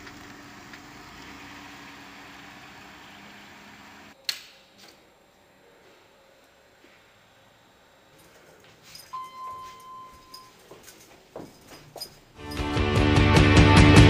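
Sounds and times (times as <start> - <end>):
van engine humming: 0.0 - 4.2
sharp click: 4.2 - 4.9
quiet indoor hum: 4.2 - 12.3.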